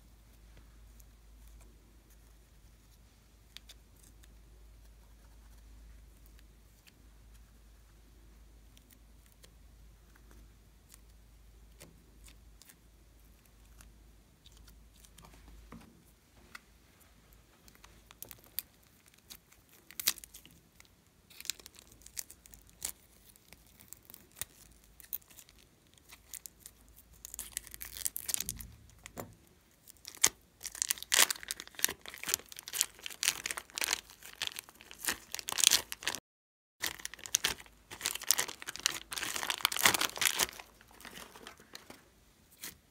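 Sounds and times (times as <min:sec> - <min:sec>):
plastic bag crinkling: 0:29.9 - 0:36.2, 0:36.8 - 0:42.1.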